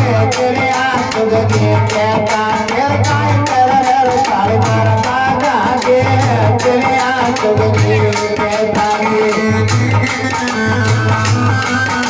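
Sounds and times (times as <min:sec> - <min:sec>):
quick repeated percussion: 0:00.0 - 0:12.0
wavering melody: 0:06.3 - 0:12.0.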